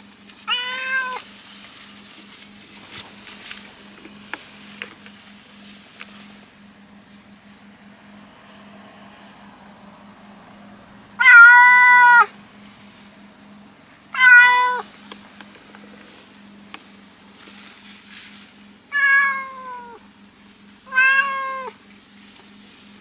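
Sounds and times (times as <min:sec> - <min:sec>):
low car interior hum: 0:00.0 - 0:23.0
cat meowing loudly: 0:00.4 - 0:01.2, 0:11.2 - 0:12.3, 0:14.1 - 0:14.9, 0:18.9 - 0:20.0, 0:20.9 - 0:21.8.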